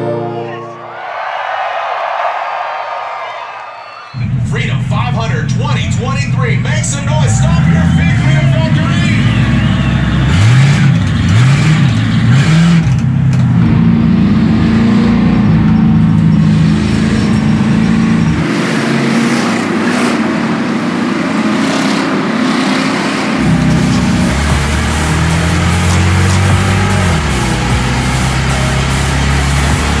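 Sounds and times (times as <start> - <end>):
distant race cars: 4.1 - 30.0
car engine revving in cabin: 6.8 - 30.0.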